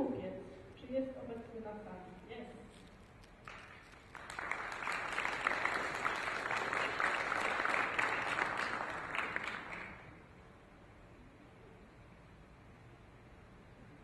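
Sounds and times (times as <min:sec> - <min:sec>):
audience applauding: 0:03.4 - 0:10.2.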